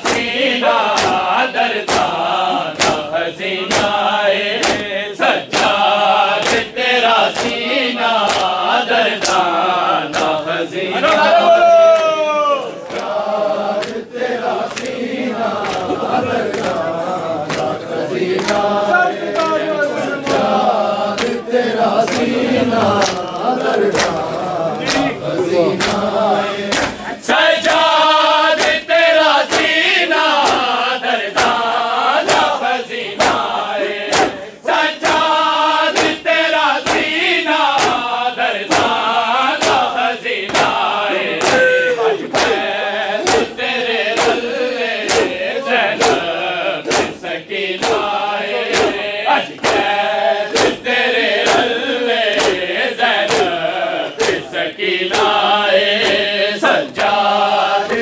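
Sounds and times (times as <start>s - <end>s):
chest beating slaps: 0.0s - 6.7s, 7.3s - 7.6s, 8.2s - 8.6s, 14.6s - 21.4s, 25.8s - 26.1s, 26.7s - 27.9s, 30.4s - 30.8s, 31.4s - 32.6s, 33.2s - 36.2s, 36.8s - 43.6s, 44.2s - 57.2s
men chanting in chorus: 0.0s - 58.0s.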